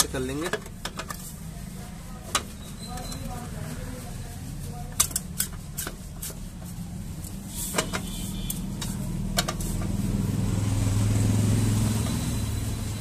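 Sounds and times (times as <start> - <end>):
vehicle engine running: 6.7 - 13.0.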